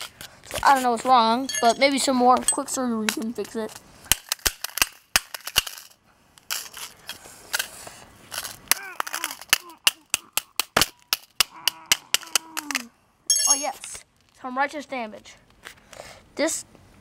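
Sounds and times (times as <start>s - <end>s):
wrench striking metal: 13.3s - 13.7s.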